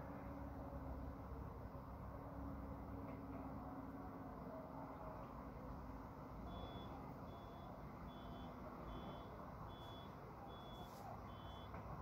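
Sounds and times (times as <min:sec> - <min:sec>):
vehicle reversing beeper: 0:06.5 - 0:11.8.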